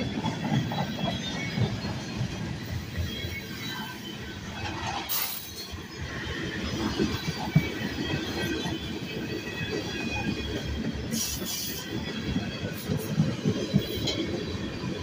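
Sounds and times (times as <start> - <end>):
freight train wheels rumbling: 0.0 - 15.0
train cars clanking: 0.0 - 15.0.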